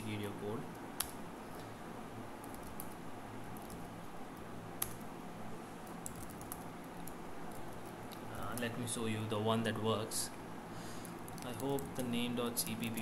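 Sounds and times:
steady low hum: 0.0 - 13.0
computer keyboard clicks: 3.6 - 3.8, 5.8 - 8.7.

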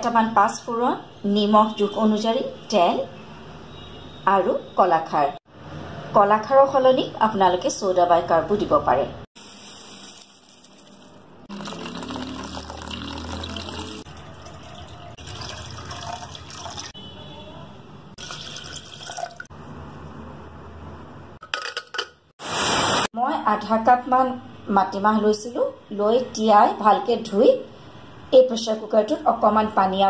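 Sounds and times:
water running and sloshing: 9.4 - 17.0.

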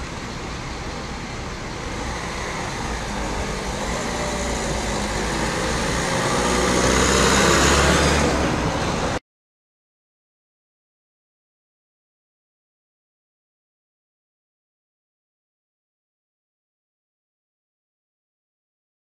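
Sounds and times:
low hum of idling vehicles: 0.0 - 6.4
car driving past: 1.8 - 9.2.

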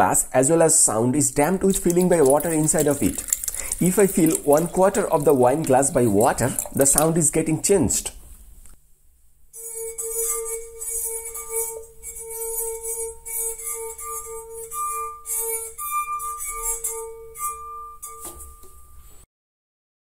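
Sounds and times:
wine glass rim singing: 1.4 - 7.4, 9.6 - 19.0.

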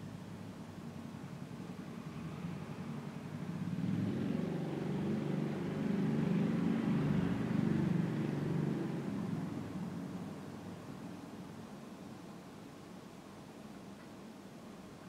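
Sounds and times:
vehicle engine rumble passing: 1.7 - 10.2.

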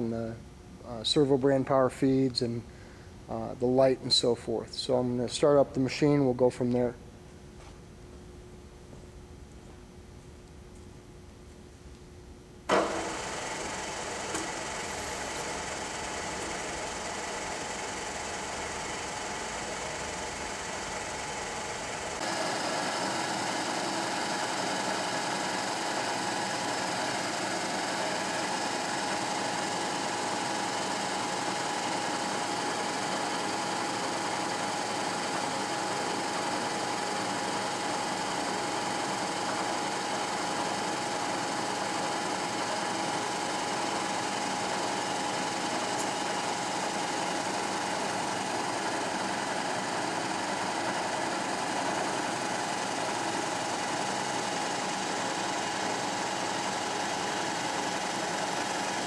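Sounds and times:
milling machine whirring: 12.7 - 59.0.

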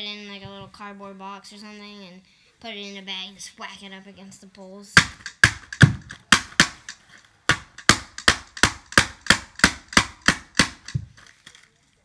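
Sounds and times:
screwdriver knocking on cardboard box: 5.0 - 11.1.

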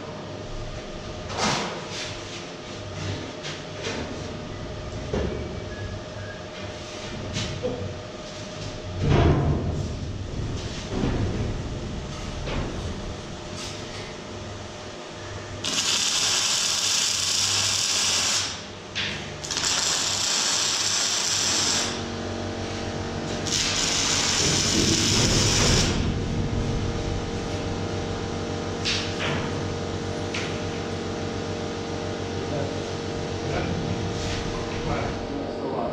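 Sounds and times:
steady electrical hum: 0.0 - 35.9
arc welding crackling hiss: 15.5 - 22.1, 23.2 - 26.1.

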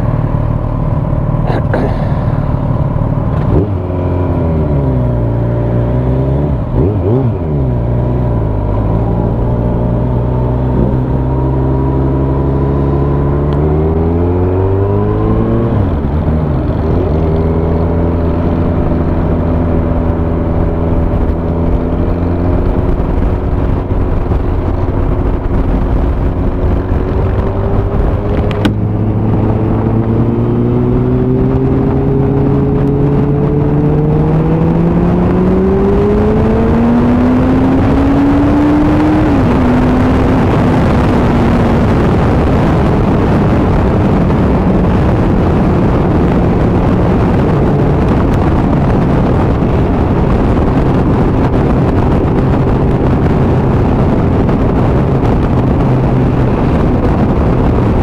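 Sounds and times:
motorcycle engine accelerating: 0.0 - 58.0
wind rush over microphone: 3.3 - 58.0.

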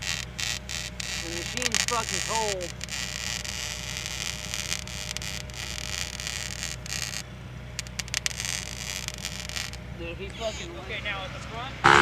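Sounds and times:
sharp clicks: 0.0 - 7.2
welding arc crackling hiss: 0.0 - 10.7
steady low hum: 0.0 - 12.0.

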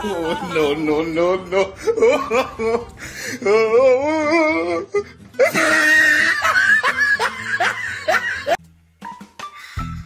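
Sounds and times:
laughter: 0.0 - 2.9, 5.4 - 8.6
music: 2.3 - 10.0.

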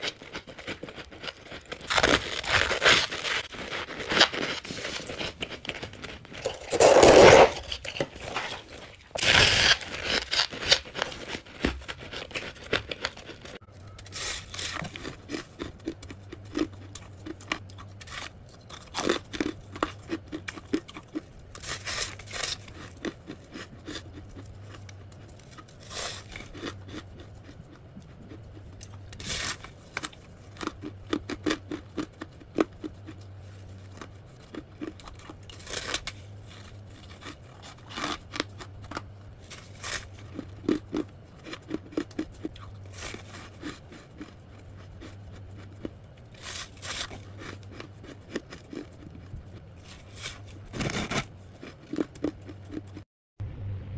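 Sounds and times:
crunchy chewing: 0.0 - 53.0
low steady hum: 0.0 - 53.9
crunching bites of frost: 0.7 - 24.8.

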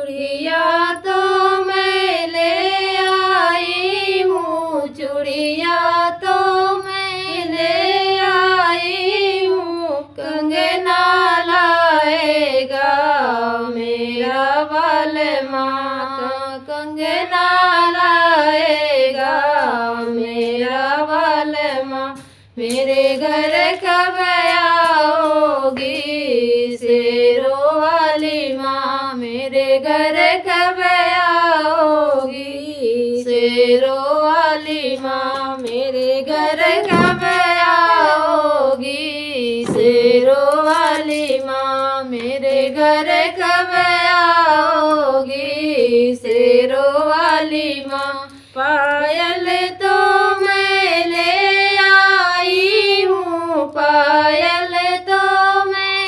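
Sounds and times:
women singing unaccompanied: 0.0 - 56.0.

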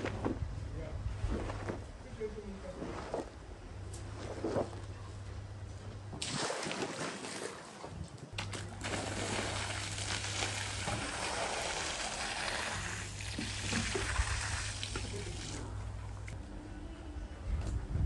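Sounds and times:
steady low hum: 0.0 - 18.0
hose water splashing on rug: 6.2 - 7.8, 8.4 - 15.7.

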